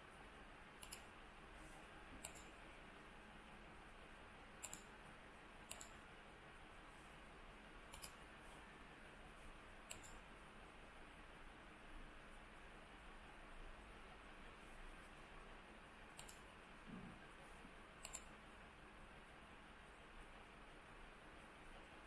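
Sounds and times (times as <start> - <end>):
computer mouse clicks: 0.8 - 1.1, 2.2 - 2.6, 4.6 - 5.0, 5.6 - 6.0, 7.9 - 8.2, 9.9 - 10.2, 16.1 - 16.5, 18.0 - 18.4.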